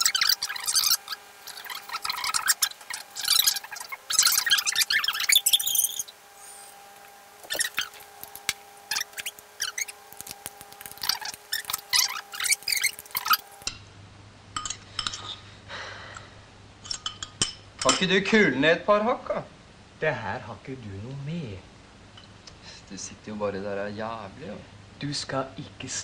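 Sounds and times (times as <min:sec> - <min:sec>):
sped-up squeaky voices: 0:00.0 - 0:06.8, 0:07.4 - 0:08.0, 0:08.9 - 0:10.0, 0:10.8 - 0:13.6.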